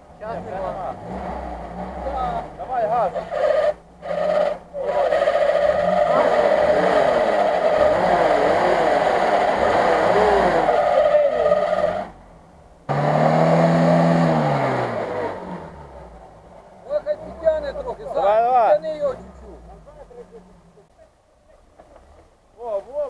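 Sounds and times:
engine revving hard: 0.2s - 12.2s, 12.9s - 20.1s
wheels spinning in mud: 3.1s - 12.1s.

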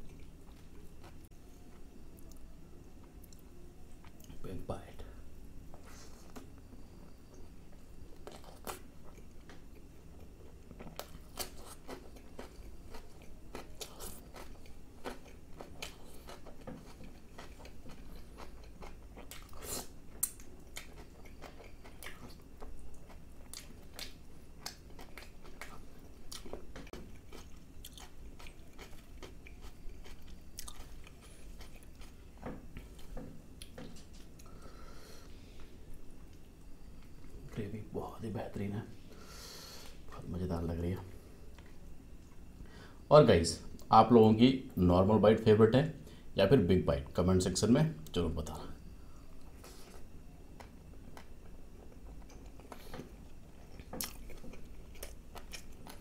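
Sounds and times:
wet chewing and biting: 50.6s - 56.0s.

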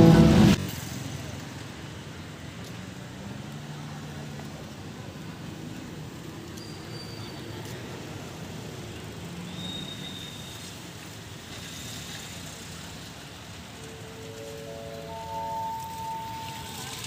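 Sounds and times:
road traffic rumble: 0.0s - 17.0s
thin high tones: 13.8s - 17.0s.

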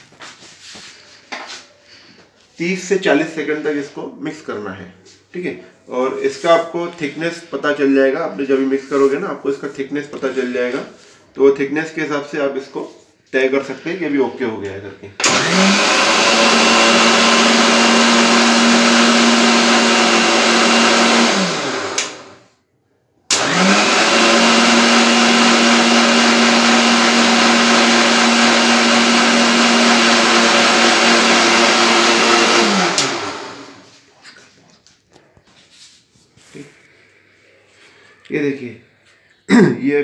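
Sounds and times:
mixer motor humming and whining: 15.2s - 22.5s, 23.3s - 33.9s.

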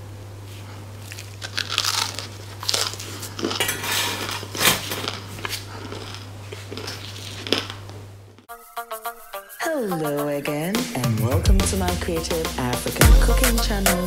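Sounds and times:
steady low hum: 0.0s - 8.5s, 11.0s - 14.0s
bread crust crackling: 1.0s - 8.1s.

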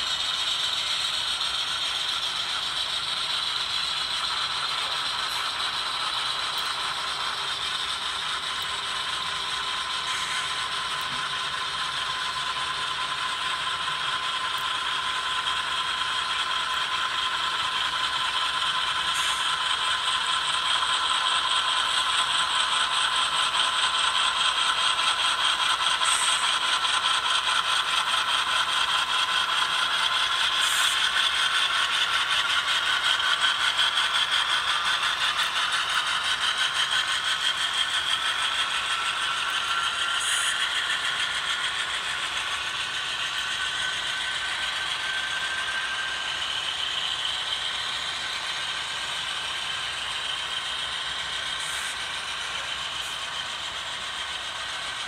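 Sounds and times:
model train wheels clattering: 0.0s - 55.0s
faint high whine: 36.5s - 55.0s.

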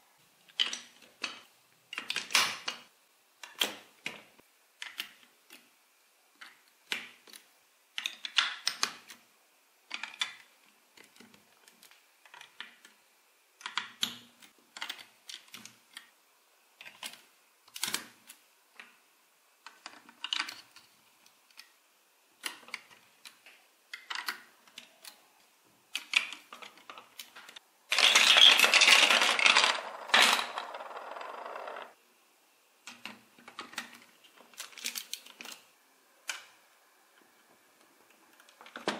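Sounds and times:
plastic toy bricks clicking: 0.5s - 2.8s, 4.8s - 5.7s, 6.4s - 9.2s, 9.9s - 13.0s, 13.6s - 16.1s, 19.6s - 20.9s, 22.4s - 25.2s, 25.9s - 32.0s
plastic pieces clattering: 27.9s - 31.9s.

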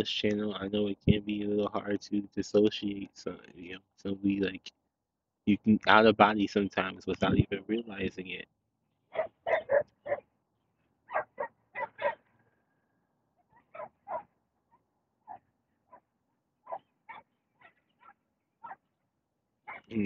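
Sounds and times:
dog barking: 9.1s - 10.3s, 11.1s - 12.2s, 13.6s - 14.3s, 16.6s - 18.8s, 19.7s - 19.9s.

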